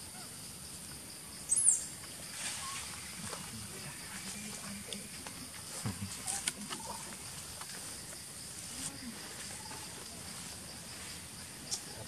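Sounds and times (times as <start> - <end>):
faint monkey calls: 0.0 - 0.5, 1.2 - 7.4
high insect drone: 0.0 - 12.0.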